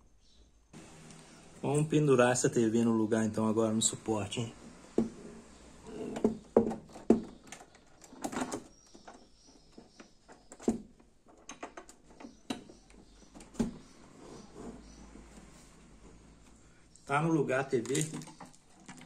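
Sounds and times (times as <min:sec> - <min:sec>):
tv brackets knocking on wall bracket: 0:06.2 - 0:07.4.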